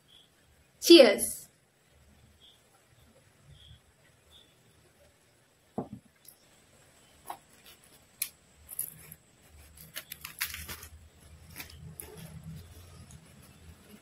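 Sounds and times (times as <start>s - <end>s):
soft thump: 5.8s - 6.1s
fried bread crackling as torn: 7.3s - 13.6s.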